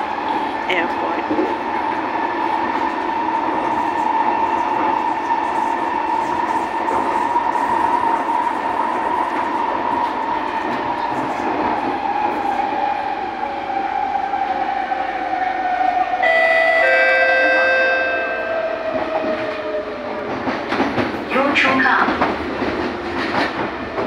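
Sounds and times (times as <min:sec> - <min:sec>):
two-note chime: 0:16.2 - 0:18.7.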